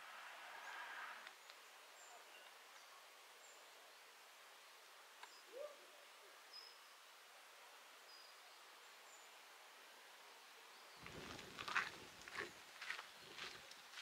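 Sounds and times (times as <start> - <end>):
low bird call: 5.3 - 5.9.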